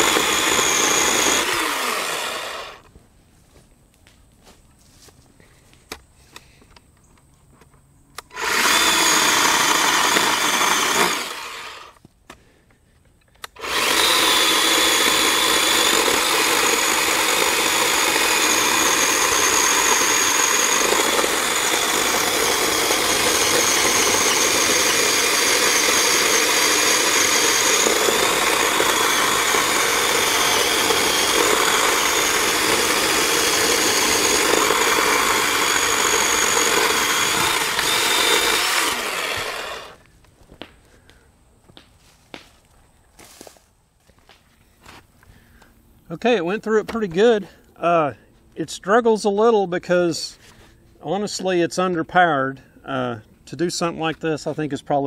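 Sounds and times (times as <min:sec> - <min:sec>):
electric chainsaw whining: 0:00.0 - 0:02.9, 0:08.2 - 0:12.0, 0:13.4 - 0:40.0.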